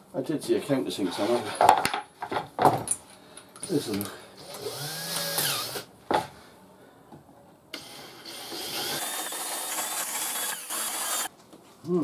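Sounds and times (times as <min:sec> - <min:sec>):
cordless drill boring into wood: 0:04.4 - 0:05.9, 0:08.2 - 0:11.3.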